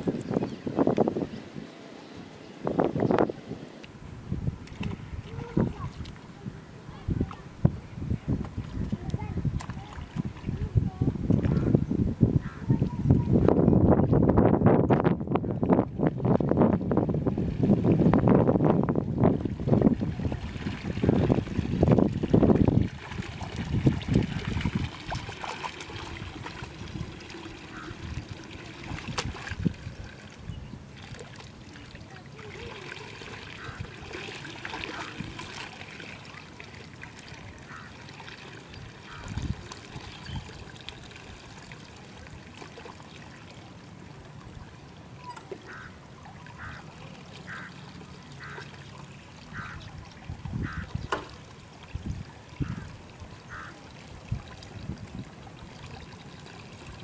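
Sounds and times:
water splashes: 0.0s - 57.0s
hands sloshing in wet mud: 19.3s - 43.4s.

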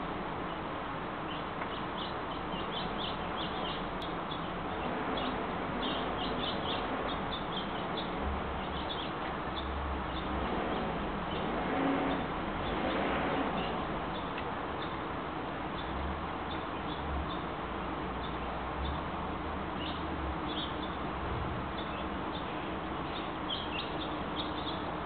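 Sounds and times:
birds chirping: 1.2s - 15.0s, 21.7s - 25.0s.

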